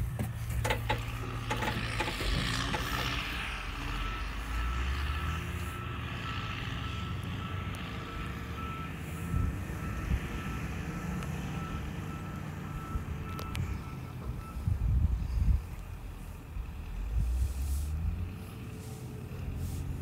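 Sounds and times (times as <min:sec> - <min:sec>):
low engine rumble: 0:00.0 - 0:20.0
reversing alarm beeping: 0:01.2 - 0:14.8.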